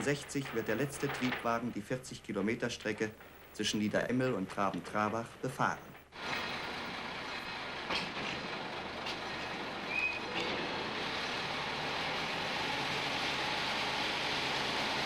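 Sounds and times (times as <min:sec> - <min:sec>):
diesel railcar rumbling: 0:00.0 - 0:15.0
brief high squeak: 0:09.9 - 0:10.5.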